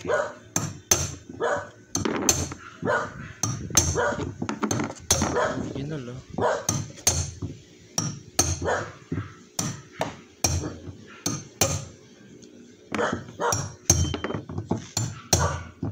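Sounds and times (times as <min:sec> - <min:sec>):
hammer striking metal: 0:00.6 - 0:01.2, 0:03.4 - 0:04.1, 0:06.7 - 0:11.9, 0:12.9 - 0:15.9.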